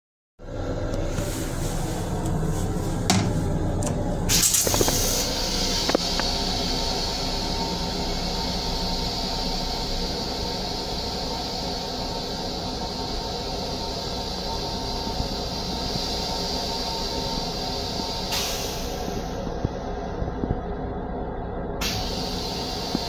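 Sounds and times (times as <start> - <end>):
railcar rumble: 0.4 - 23.0
air hiss: 4.3 - 20.0, 21.8 - 23.0.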